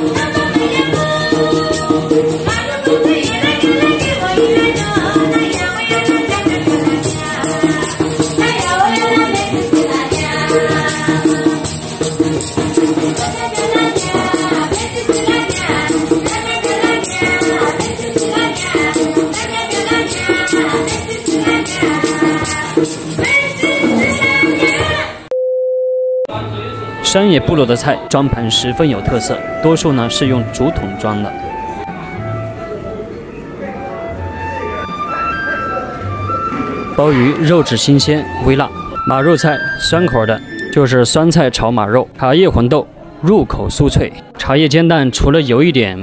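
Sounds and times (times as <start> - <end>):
rattling shaker beat: 0.0 - 25.0
women singing together: 0.0 - 25.3.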